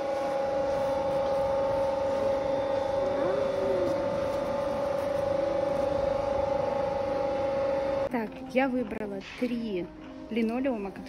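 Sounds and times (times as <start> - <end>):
electric machine hum: 0.0 - 8.2.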